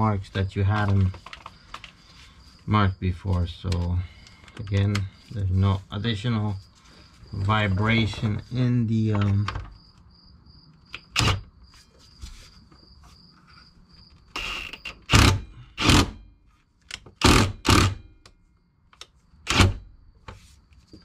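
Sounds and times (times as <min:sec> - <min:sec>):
impact wrench bursts: 0:14.4 - 0:16.2, 0:17.2 - 0:18.2.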